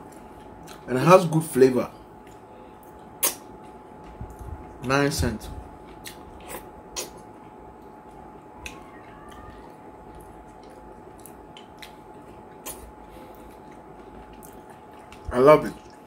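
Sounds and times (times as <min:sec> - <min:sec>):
wet chewing clicks: 0:00.0 - 0:00.9, 0:05.8 - 0:16.0
faint steady hum: 0:00.0 - 0:16.0
fingers squelching through food: 0:05.8 - 0:16.0.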